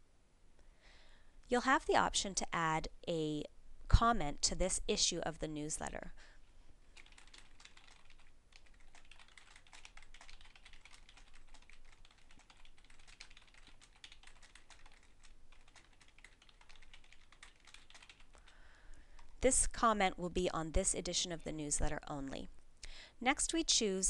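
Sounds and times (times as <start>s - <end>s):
typing on computer keyboard: 6.9s - 18.6s.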